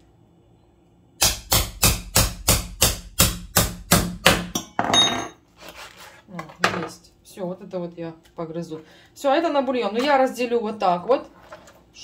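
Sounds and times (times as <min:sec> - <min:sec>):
hatchet chopping bone: 0:01.2 - 0:04.6
scrape on cutting board: 0:05.6 - 0:06.3.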